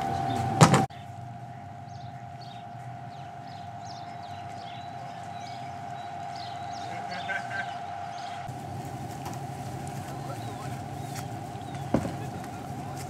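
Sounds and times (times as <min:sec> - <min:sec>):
faint bird chirps: 0:00.0 - 0:08.5
turbine and generator whine: 0:00.0 - 0:13.0.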